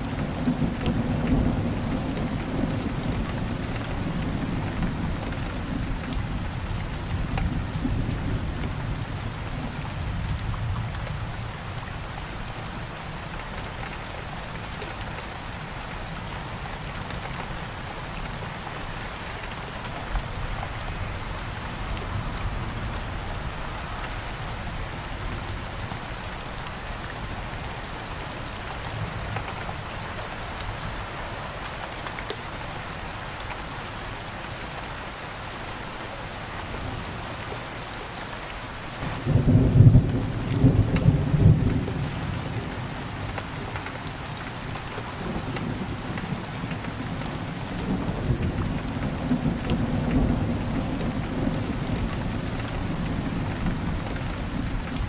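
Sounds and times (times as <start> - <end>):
heavy rain on a window: 0.0 - 55.0.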